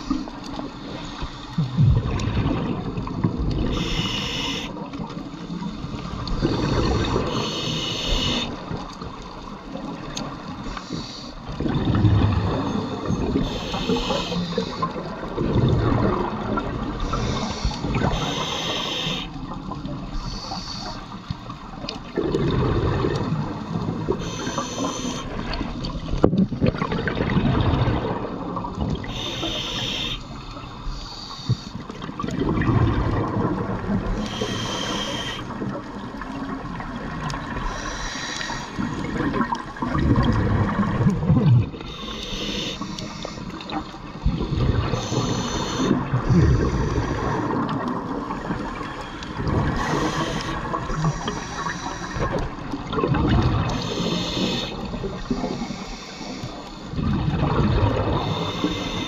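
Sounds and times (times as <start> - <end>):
regulator inhale hiss: 3.7 - 4.8, 7.2 - 8.5, 10.6 - 11.5, 13.4 - 15.0, 17.0 - 19.4, 20.2 - 21.4, 24.2 - 25.4, 29.0 - 31.9, 34.1 - 35.5, 37.6 - 38.9, 41.8 - 44.0, 44.8 - 47.6, 49.0 - 52.5, 53.7 - 57.0, 58.2 - 59.0
exhaust bubbles rushing: 52.9 - 53.7, 57.0 - 58.2.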